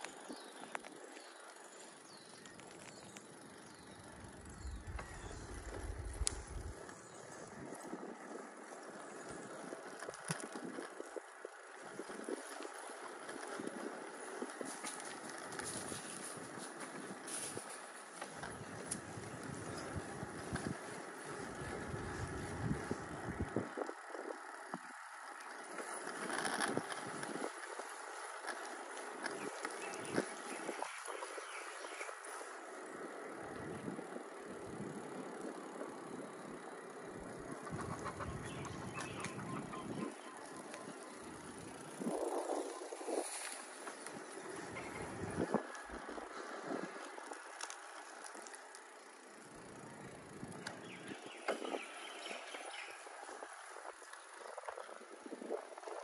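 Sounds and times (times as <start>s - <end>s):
bicycle tyres on dirt path: 0.0s - 56.0s
wind buffeting microphone: 4.4s - 24.9s, 25.8s - 32.6s, 33.4s - 47.4s, 49.7s - 56.0s
small clicks and rattles: 8.8s - 22.2s, 23.8s - 32.6s, 43.3s - 51.8s.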